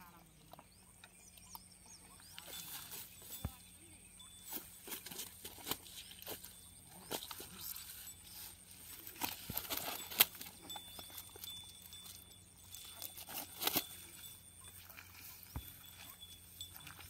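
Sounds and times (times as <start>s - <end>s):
net rustling and tapping: 9.1s - 11.5s.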